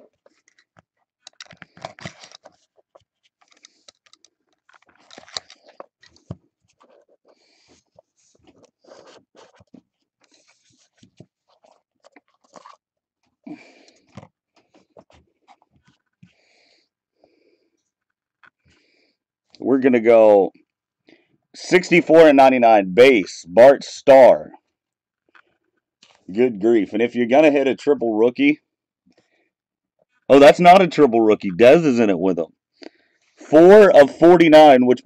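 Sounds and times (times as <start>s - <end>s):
cardboard and cards rustling: 0.0s - 16.8s.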